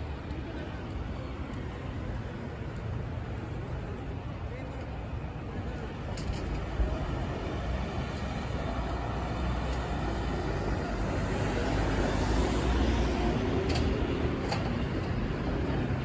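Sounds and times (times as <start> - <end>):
road traffic passing: 0.0 - 16.0.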